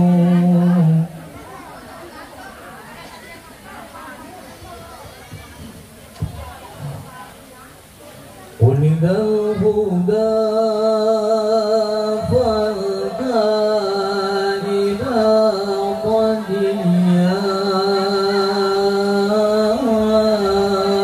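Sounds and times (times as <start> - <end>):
man singing devotional chant: 0.0 - 1.2, 8.6 - 21.0.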